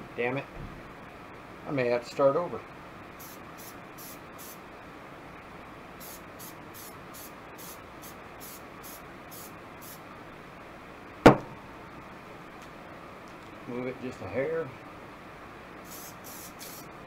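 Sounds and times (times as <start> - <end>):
spray-paint can hissing: 3.2 - 4.6, 6.0 - 10.0, 15.8 - 16.9
sharp knock: 11.2 - 11.6.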